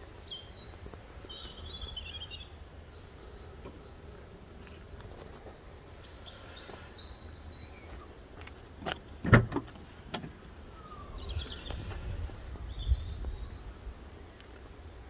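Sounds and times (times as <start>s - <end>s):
birds chirping: 0.0s - 9.2s, 9.8s - 14.1s
tailgate lifting: 9.2s - 10.4s.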